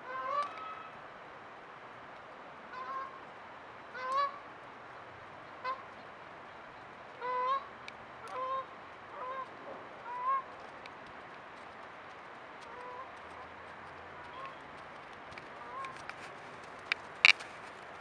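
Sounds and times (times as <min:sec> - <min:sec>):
goose honking: 0:02.7 - 0:03.2, 0:05.6 - 0:05.8, 0:07.2 - 0:09.5, 0:10.1 - 0:10.4, 0:12.7 - 0:13.1, 0:15.6 - 0:16.0.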